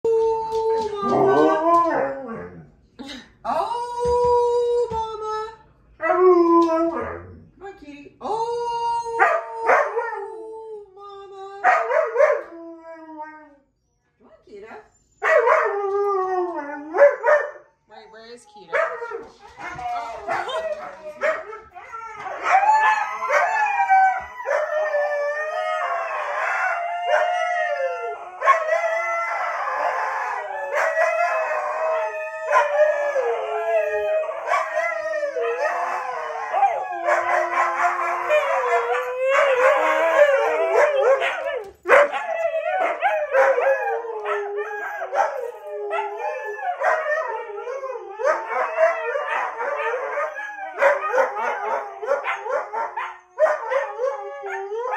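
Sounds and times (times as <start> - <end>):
huskies howling: 0.1 - 2.6, 18.8 - 54.9.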